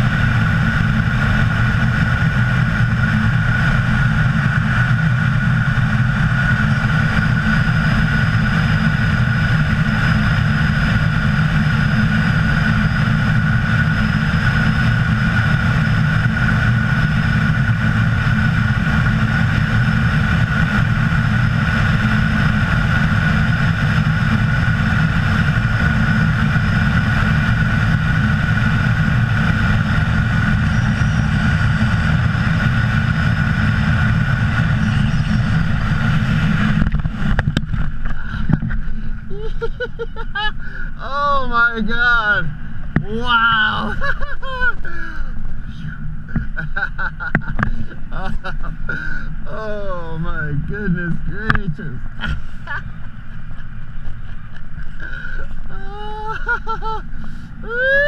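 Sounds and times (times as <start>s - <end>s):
wind buffeting microphone: 0.0s - 39.4s.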